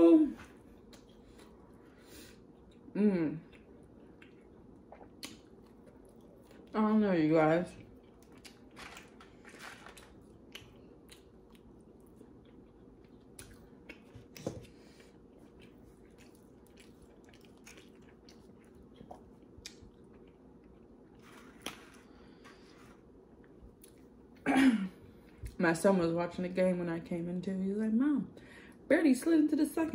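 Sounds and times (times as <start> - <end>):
person chewing food: 0.4 - 6.8, 7.7 - 24.4.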